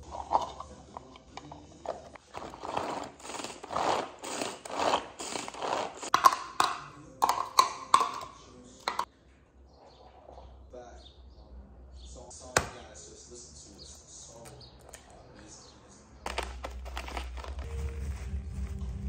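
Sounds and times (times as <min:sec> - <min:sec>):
hand food chopper whirring: 0:02.2 - 0:06.2.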